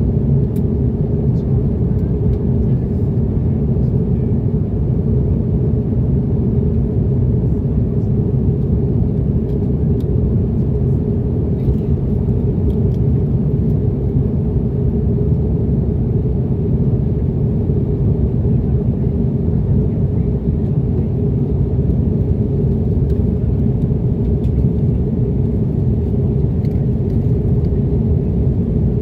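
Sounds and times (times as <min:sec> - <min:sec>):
airliner cabin drone: 0:00.0 - 0:29.0.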